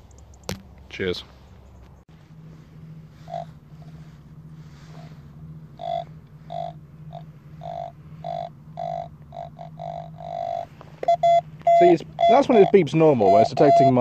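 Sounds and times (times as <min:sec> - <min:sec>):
low hum: 0:00.0 - 0:14.0
metal detector beeps: 0:03.3 - 0:03.9, 0:05.8 - 0:14.0.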